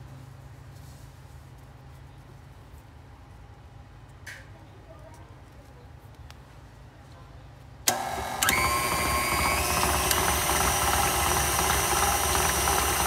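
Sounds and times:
stand mixer motor whine: 0:07.9 - 0:13.0.

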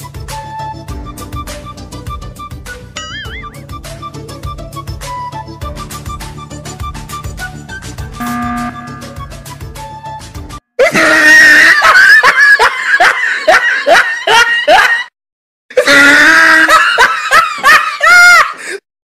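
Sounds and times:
background music: 0:00.0 - 0:10.7.

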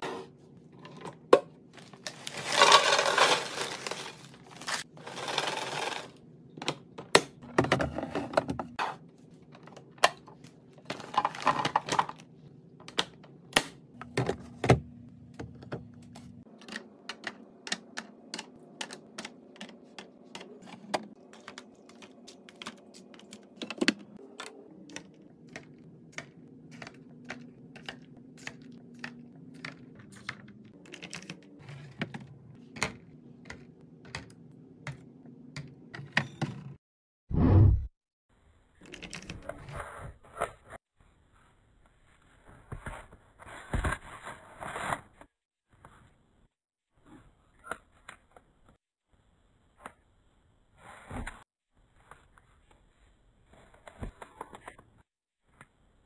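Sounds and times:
plastic packages clicking into bins: 0:01.8 - 0:06.1
crunching rustles of chip canister: 0:02.1 - 0:06.0.

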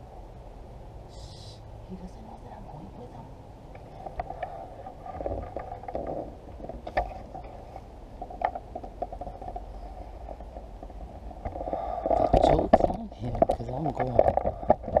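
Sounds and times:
camera handling rumble: 0:03.8 - 0:15.0
handling knocks and clicks: 0:08.2 - 0:09.7, 0:10.3 - 0:15.0.

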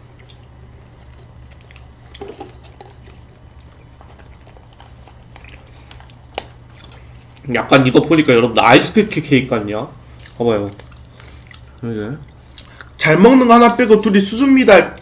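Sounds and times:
quiet chewing: 0:00.0 - 0:08.4, 0:10.0 - 0:13.0
steady low hum: 0:00.0 - 0:15.0.

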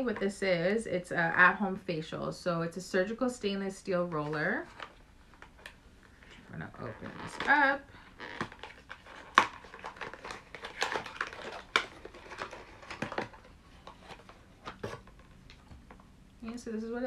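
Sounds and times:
packaging crinkling and rustling: 0:04.4 - 0:16.0.

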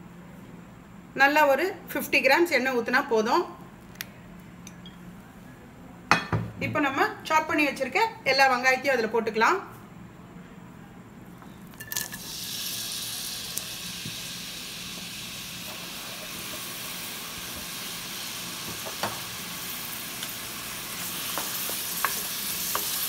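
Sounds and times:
onions frying in oil: 0:11.7 - 0:23.0.

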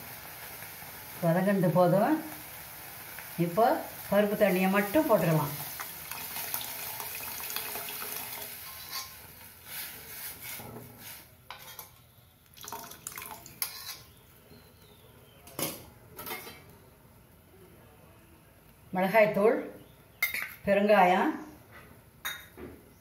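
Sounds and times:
liquid pouring into pan: 0:05.6 - 0:09.2, 0:12.5 - 0:14.0
steel spoon scraping bowl: 0:08.6 - 0:11.9, 0:13.6 - 0:14.2.

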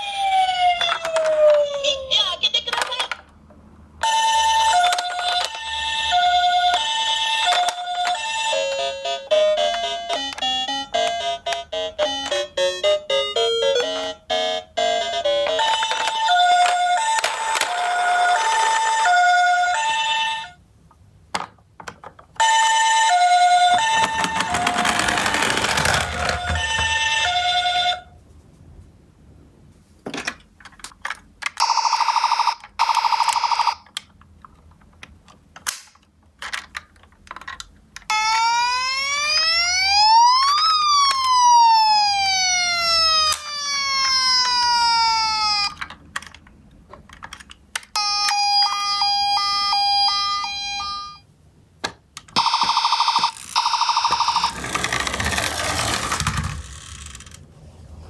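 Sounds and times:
electronic wail siren: 0:00.0 - 0:01.8, 0:38.1 - 0:45.8, 0:52.4 - 0:54.8
two-tone electronic toy siren: 0:00.0 - 0:02.0, 0:04.0 - 0:20.6, 0:22.4 - 0:28.1, 0:31.6 - 0:33.9, 0:38.1 - 0:45.8, 0:48.0 - 0:51.2, 0:52.4 - 0:55.8.

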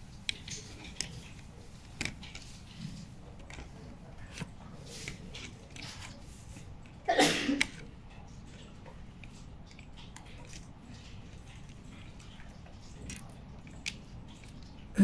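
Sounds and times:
faint handling clicks and taps: 0:00.0 - 0:15.0.

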